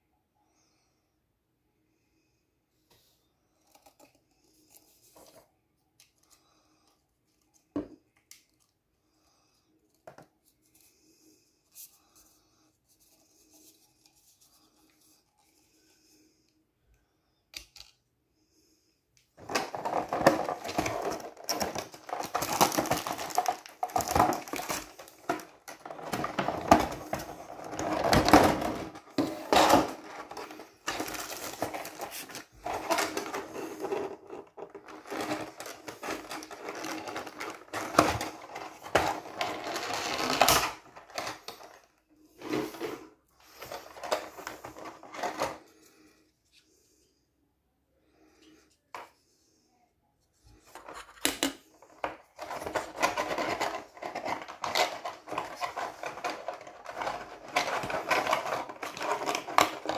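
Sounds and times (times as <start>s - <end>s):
hard plastic crackling and clicking: 19.4s - 41.8s, 50.8s - 59.9s.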